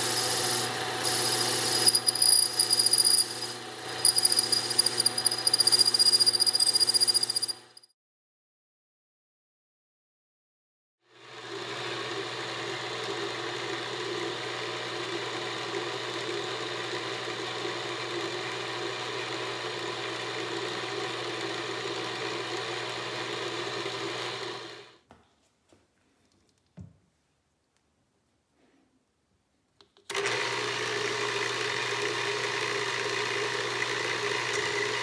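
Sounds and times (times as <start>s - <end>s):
milling machine motor running: 0.0s - 7.8s, 30.1s - 35.0s.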